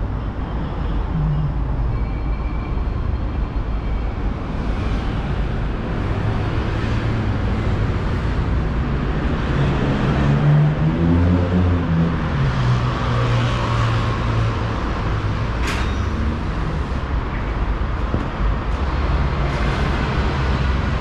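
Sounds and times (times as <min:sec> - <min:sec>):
road traffic passing: 0:00.0 - 0:21.0
loud vehicle passing: 0:05.8 - 0:15.6.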